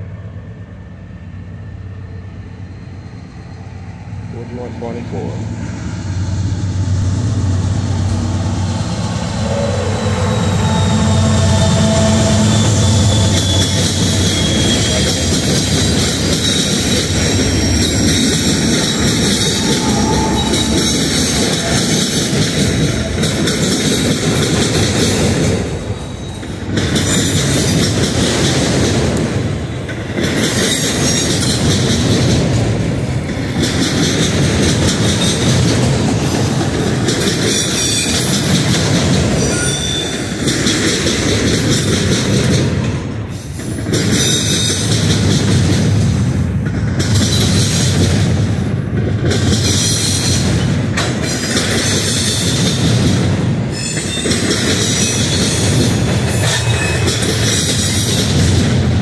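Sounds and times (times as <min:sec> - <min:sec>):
train wheels rumbling on rail: 0:00.0 - 0:59.0
wheel squeal: 0:09.4 - 0:15.7, 0:16.3 - 0:22.0, 0:39.4 - 0:40.3, 0:53.7 - 0:57.3.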